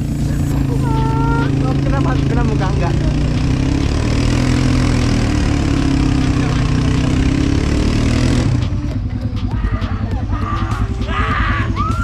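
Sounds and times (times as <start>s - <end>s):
atv engine running: 0.0s - 12.0s.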